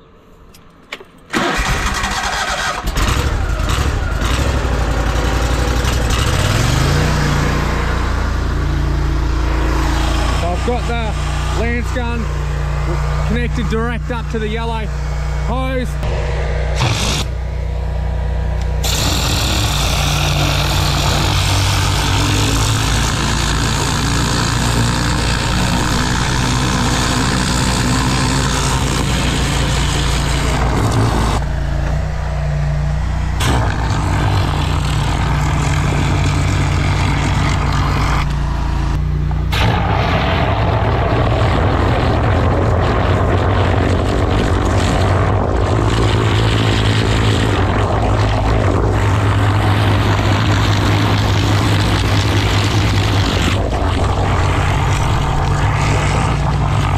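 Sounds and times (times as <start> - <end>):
engine hum: 0.0 - 56.9
water jet hissing: 18.8 - 31.4.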